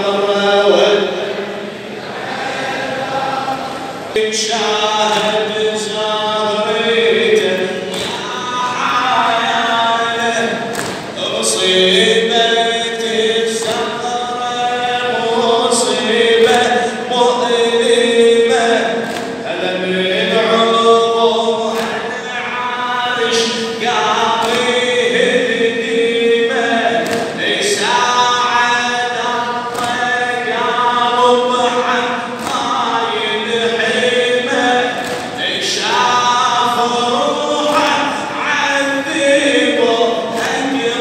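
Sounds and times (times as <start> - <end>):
group of men chanting: 0.0 - 41.0
sharp slap: 5.0 - 5.5, 7.4 - 9.0, 10.4 - 11.2, 13.5 - 14.0, 16.4 - 16.9, 18.8 - 19.4, 21.7 - 22.2, 23.4 - 25.0, 26.9 - 27.4, 29.6 - 30.3, 32.4 - 32.9, 34.1 - 35.6, 36.6 - 38.3, 40.3 - 41.0.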